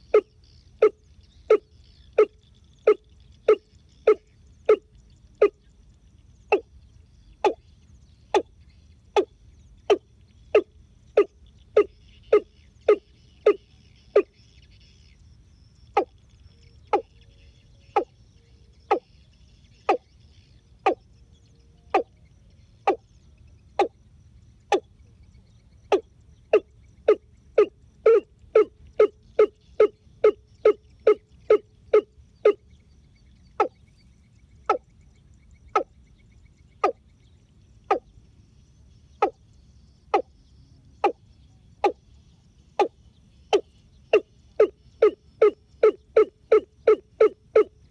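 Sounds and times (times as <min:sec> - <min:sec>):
bird's hollow knocking calls: 0:00.0 - 0:05.7, 0:06.5 - 0:06.7, 0:07.4 - 0:07.7, 0:09.1 - 0:14.5, 0:15.8 - 0:16.2, 0:16.8 - 0:17.2, 0:17.9 - 0:18.2, 0:18.8 - 0:19.2, 0:19.8 - 0:20.2, 0:20.8 - 0:21.1, 0:21.9 - 0:22.2, 0:22.8 - 0:23.0, 0:24.6 - 0:24.9, 0:25.8 - 0:32.8, 0:33.5 - 0:33.9, 0:34.6 - 0:34.9, 0:35.6 - 0:36.0, 0:36.8 - 0:37.0, 0:37.8 - 0:38.1, 0:39.1 - 0:39.4, 0:40.0 - 0:40.4, 0:41.0 - 0:41.2, 0:41.8 - 0:42.1, 0:42.8 - 0:47.9.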